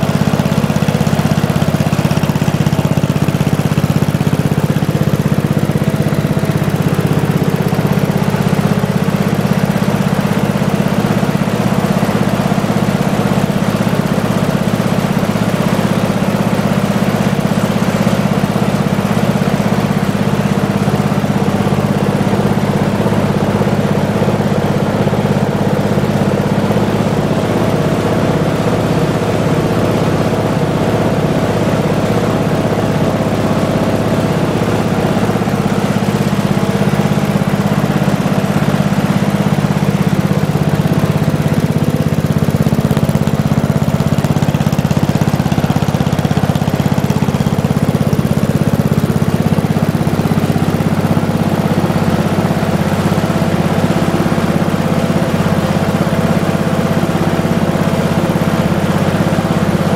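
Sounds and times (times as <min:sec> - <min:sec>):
single-cylinder engine running: 0:00.0 - 0:59.9.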